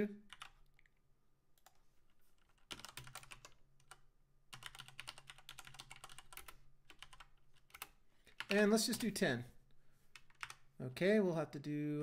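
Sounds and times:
keyboard typing: 0.3s - 0.9s, 1.6s - 9.2s, 10.1s - 10.6s.

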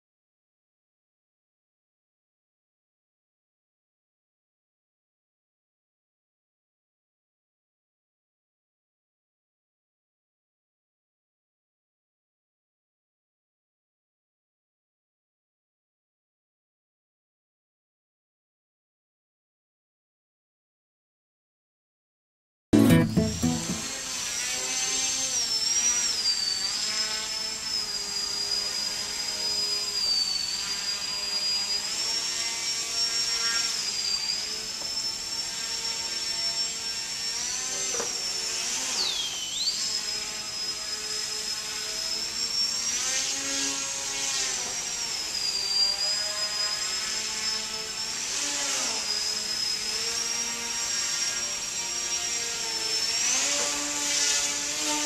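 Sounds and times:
small electric motor whining: 23.8s - 55.0s.

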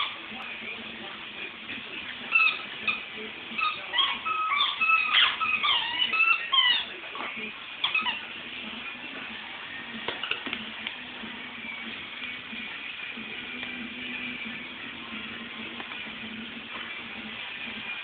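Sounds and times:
puppy whining: 2.3s - 8.4s.

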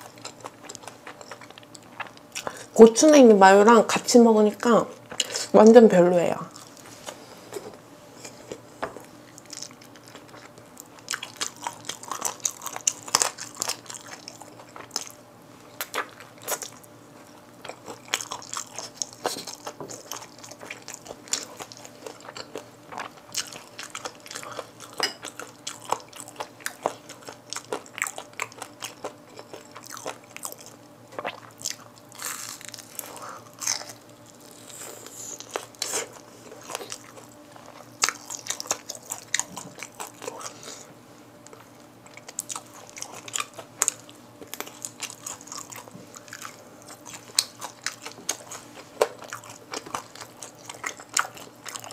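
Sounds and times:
crunching and chewing: 0.0s - 2.7s, 6.5s - 51.9s
crisp crackles of fried skin: 31.7s - 35.9s.

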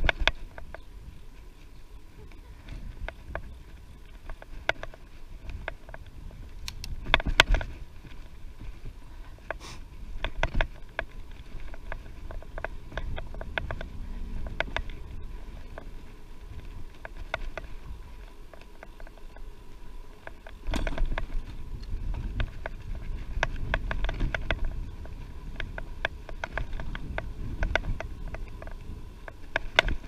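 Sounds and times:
bicycle clicking and rattling: 0.0s - 30.0s
wind and tyre rumble: 0.0s - 30.0s.

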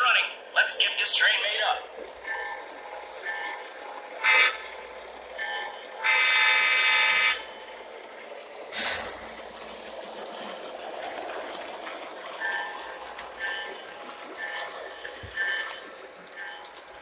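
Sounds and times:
model locomotive electronic horn: 2.3s - 7.8s.

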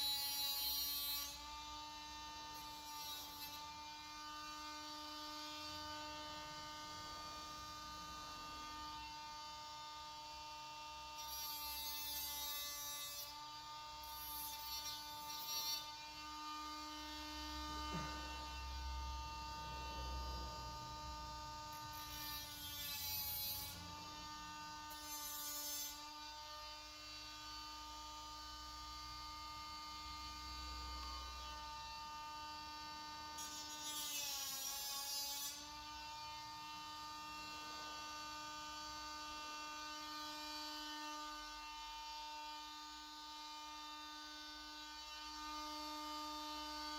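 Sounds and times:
rotary grinding tool whining: 0.0s - 7.9s, 10.8s - 19.9s, 21.6s - 28.0s, 29.6s - 37.6s.

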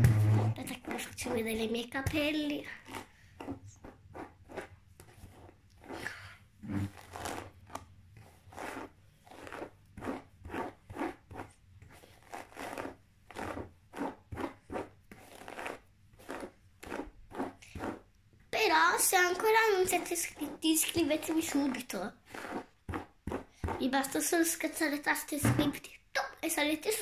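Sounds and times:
hairbrush swishing through hair: 8.4s - 18.0s.

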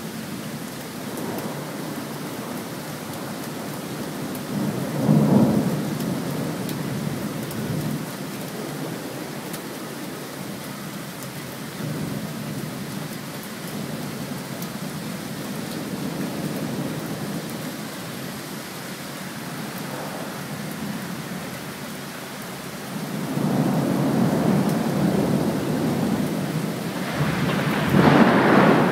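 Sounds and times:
steady rain: 0.0s - 28.9s
rolling thunder: 27.0s - 28.9s.

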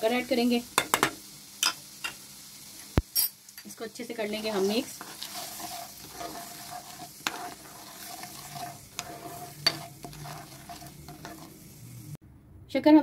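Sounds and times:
spoon scraping frying pan: 4.0s - 12.1s.

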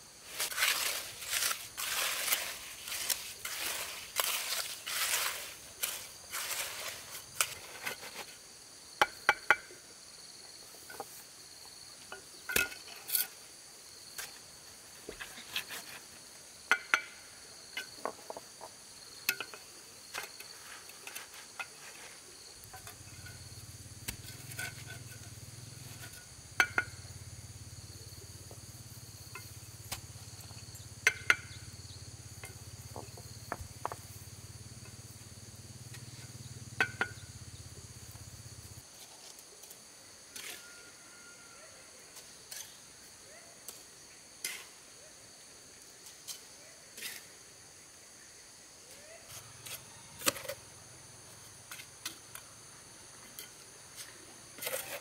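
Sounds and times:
insects droning: 0.0s - 55.0s
knocks and clinks of hand work: 26.1s - 27.0s.

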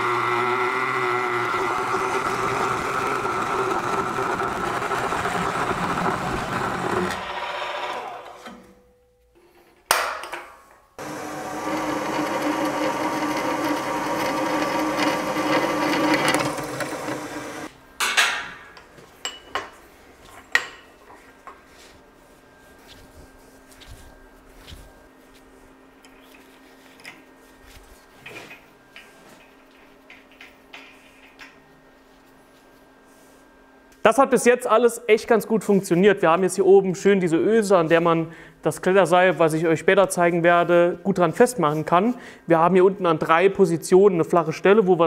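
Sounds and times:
milling cutter cutting steel: 0.0s - 8.6s, 11.0s - 17.7s
drill press whining: 0.0s - 8.8s, 11.0s - 17.7s.

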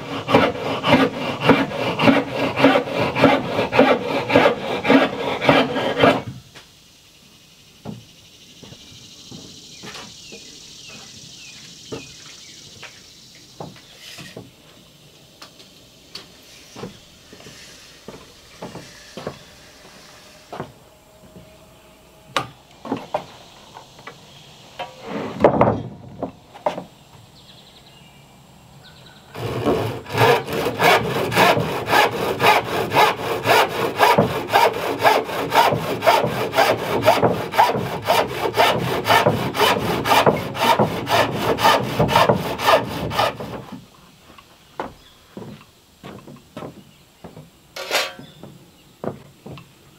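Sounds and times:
handsaw cutting wood: 0.0s - 6.4s, 29.4s - 43.8s
knocks and clunks: 24.8s - 26.9s, 44.8s - 49.7s.

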